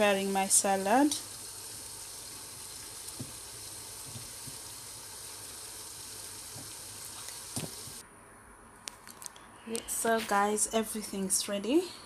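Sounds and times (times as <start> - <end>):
food sizzling in pan: 0.0 - 8.0.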